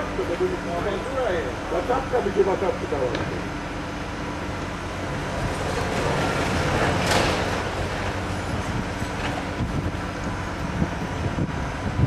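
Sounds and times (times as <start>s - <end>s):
excavator diesel engine running: 0.0s - 12.0s
falling masonry crash: 5.2s - 9.5s.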